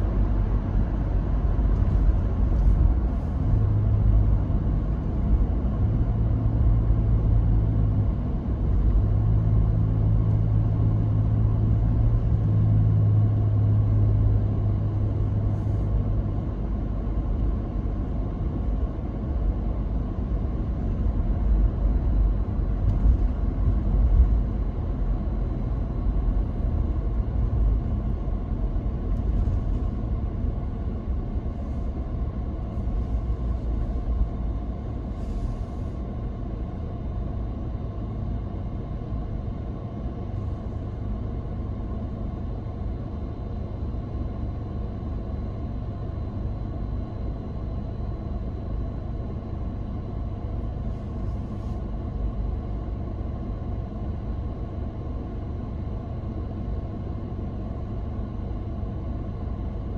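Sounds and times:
car driving rumble: 0.0s - 43.0s.

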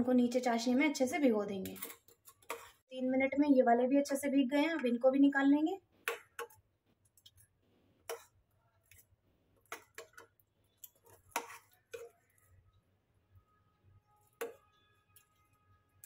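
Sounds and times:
spoon scraping a metal pan: 1.5s - 2.8s, 8.0s - 9.0s, 9.7s - 12.6s.

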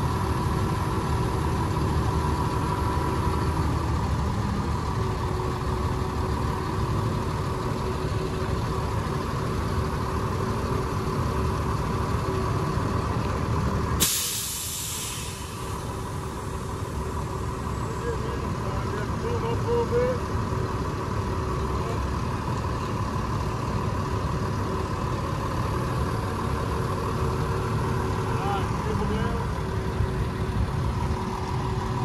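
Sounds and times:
truck engine idling: 0.0s - 32.0s
air brake hiss: 14.0s - 16.3s.

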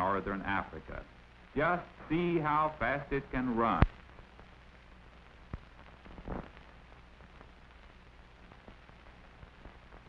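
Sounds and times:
faint crackles: 0.0s - 10.0s
low hum and hiss: 0.0s - 10.0s.

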